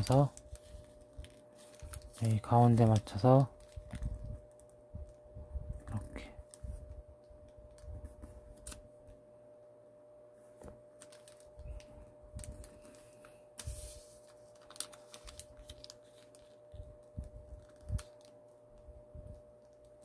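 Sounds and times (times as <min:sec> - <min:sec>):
paper rustle: 0:00.0 - 0:04.7, 0:10.6 - 0:20.0
paper crinkling while folded: 0:00.0 - 0:05.2, 0:10.7 - 0:20.0
faint steady hum: 0:00.0 - 0:20.0.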